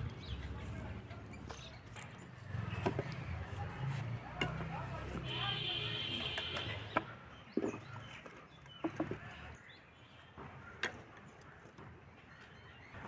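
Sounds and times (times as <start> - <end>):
firewood knocking and scraping: 0.3 - 9.6.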